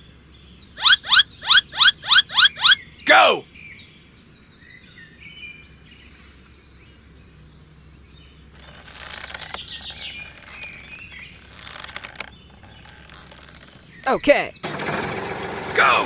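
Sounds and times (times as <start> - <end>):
birds chirping: 0.0 - 16.0
twine rustling and scraping: 8.6 - 14.1.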